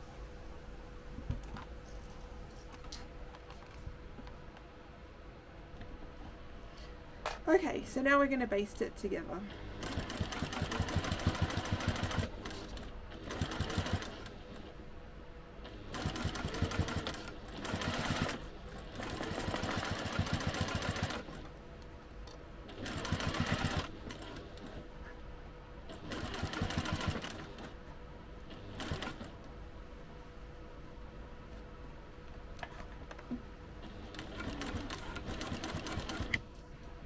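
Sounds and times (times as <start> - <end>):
sewing machine stitching: 9.6 - 14.7, 15.7 - 21.5, 22.7 - 24.8, 25.9 - 27.8, 28.5 - 29.3, 33.8 - 36.4.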